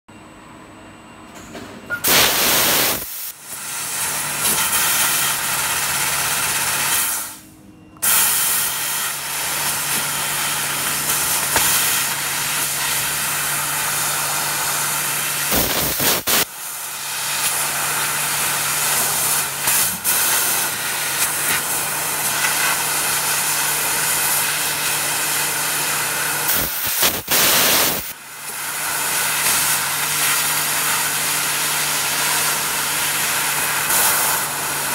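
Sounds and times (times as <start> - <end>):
hiss of gas through nozzle: 2.0 - 5.2, 15.4 - 16.5, 26.4 - 28.2
low steady machine hum: 7.4 - 8.0.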